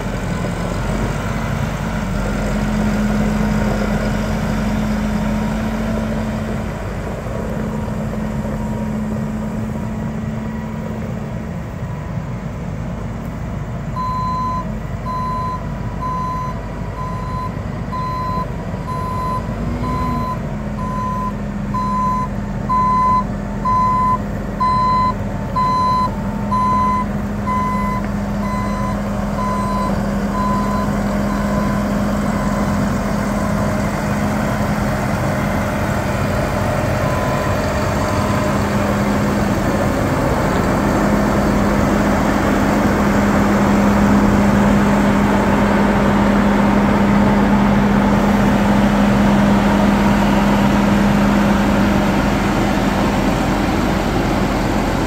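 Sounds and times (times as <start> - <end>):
diesel tractor engine running: 0.0 - 55.0
reverse alarm beeping: 14.0 - 33.6.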